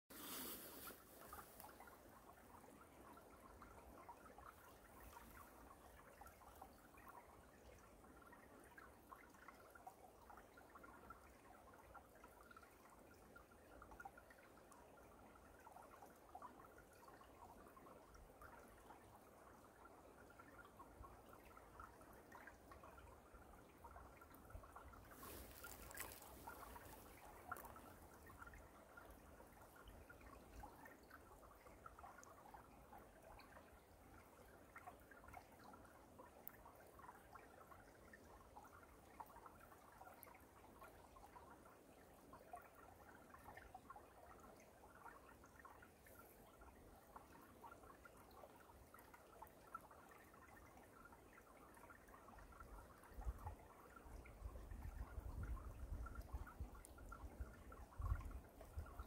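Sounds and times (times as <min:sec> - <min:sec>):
stream trickling over stones: 0:00.1 - 0:59.0.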